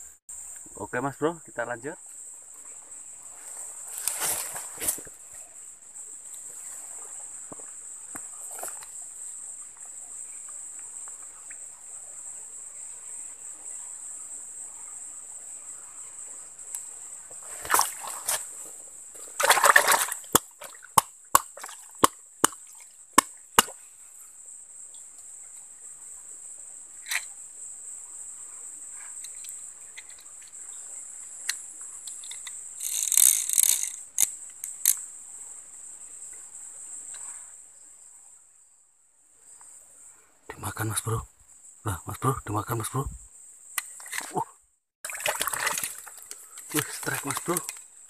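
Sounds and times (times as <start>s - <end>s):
insect chorus: 0.0s - 48.0s
splashing and rustling in water: 2.6s - 5.4s, 17.2s - 23.8s, 45.0s - 48.0s.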